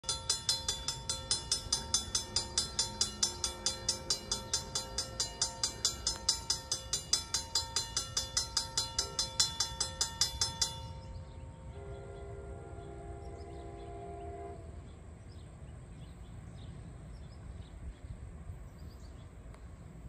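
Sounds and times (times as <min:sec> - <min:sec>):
railroad crossing bell ringing: 0:00.0 - 0:14.6.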